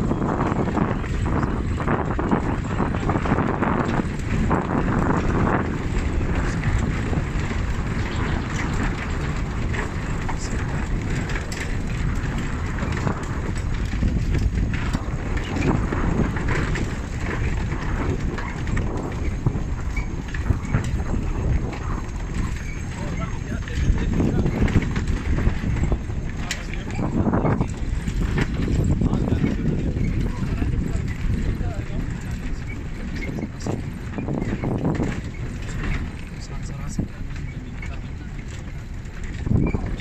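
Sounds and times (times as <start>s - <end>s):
vehicle knocks and rattles: 0.0s - 40.0s
wheels rumbling on dirt road: 0.0s - 40.0s.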